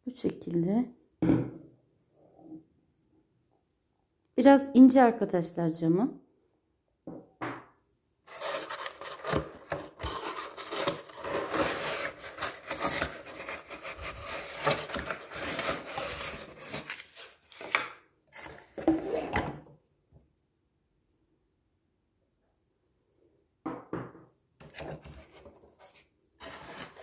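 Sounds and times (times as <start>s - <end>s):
cardboard box rustling and scraping: 8.3s - 17.7s, 24.7s - 27.0s.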